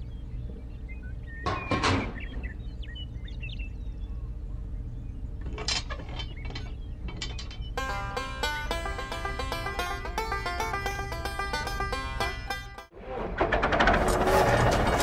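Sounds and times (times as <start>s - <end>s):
steady low hum: 0.0s - 13.0s
background music: 7.8s - 12.9s.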